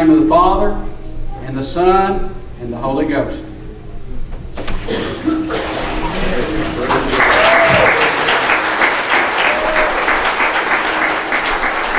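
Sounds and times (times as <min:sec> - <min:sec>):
water sloshing: 0:04.5 - 0:07.2
congregation applauding: 0:05.5 - 0:11.9.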